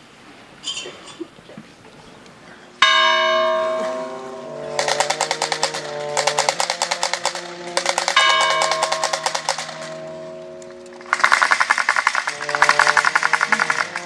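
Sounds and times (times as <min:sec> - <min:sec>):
loud bell strike: 0:02.8 - 0:11.5
long bell ringing tones: 0:02.8 - 0:14.0
rapid bell clanging: 0:02.8 - 0:14.0.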